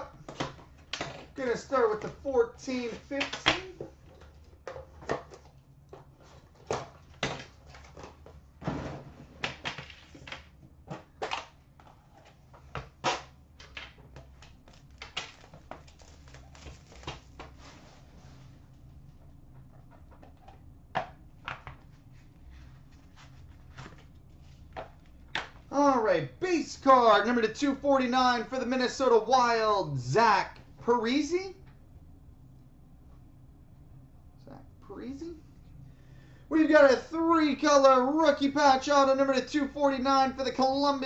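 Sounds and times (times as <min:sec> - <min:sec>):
wrapper and cards rustling: 0:14.2 - 0:18.9.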